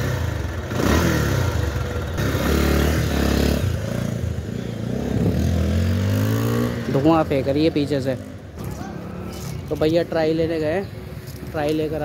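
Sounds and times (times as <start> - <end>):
motorcycle engine revving: 0.0 - 9.5.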